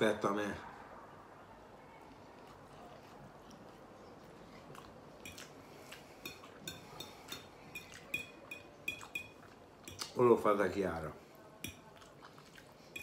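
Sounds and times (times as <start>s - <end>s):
faint chewing: 1.9s - 10.2s, 11.2s - 13.0s
fork clinking on a plate: 6.2s - 10.1s, 11.6s - 11.9s.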